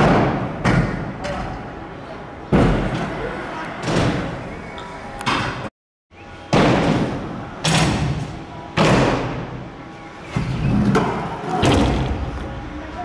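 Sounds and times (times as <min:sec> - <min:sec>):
scooters thudding on ramps: 0:10.3 - 0:12.5.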